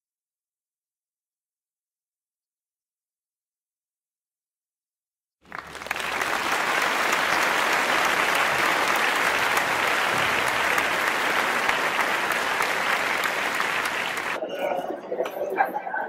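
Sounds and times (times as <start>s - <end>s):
crowd applauding: 5.4s - 14.4s.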